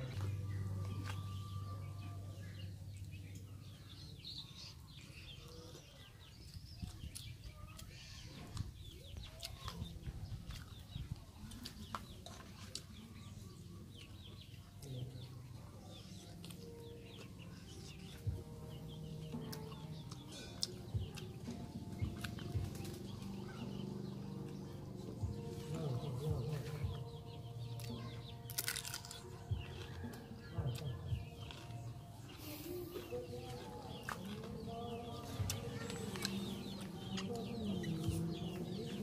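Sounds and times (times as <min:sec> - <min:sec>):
birds calling: 0:00.0 - 0:39.0
chicken tearing and chewing: 0:05.4 - 0:14.3, 0:19.2 - 0:23.8, 0:27.8 - 0:38.1.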